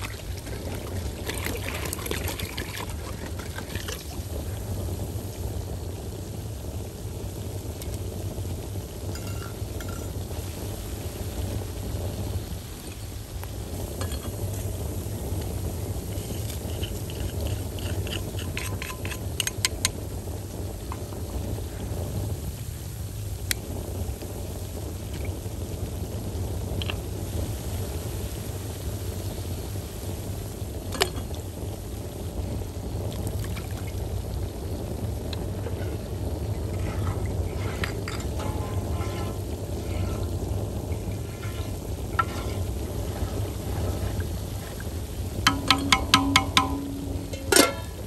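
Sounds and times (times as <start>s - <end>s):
steady low rumble: 0.0s - 48.0s
metal utensil clinking on vessel: 9.1s - 10.2s, 17.1s - 19.9s, 36.7s - 44.7s, 45.5s - 48.0s.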